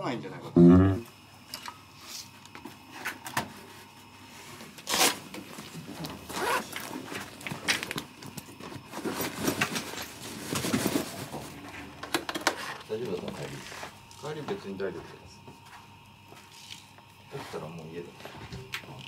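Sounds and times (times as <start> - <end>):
rustling handling noise: 3.8 - 11.9
zipper rasping: 6.3 - 6.9.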